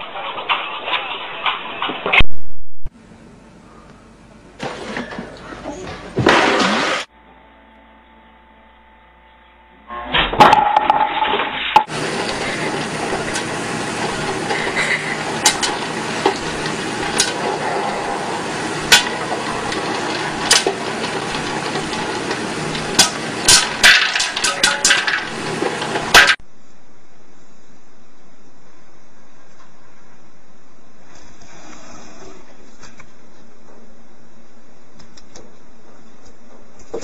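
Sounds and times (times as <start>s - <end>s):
popcorn popper hissing: 10.7s - 26.4s
popcorn kernels popping: 11.8s - 26.4s.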